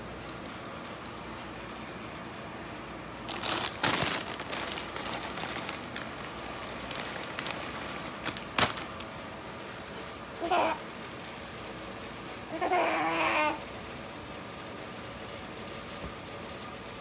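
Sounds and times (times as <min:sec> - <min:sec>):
small crackles: 0:03.3 - 0:09.2.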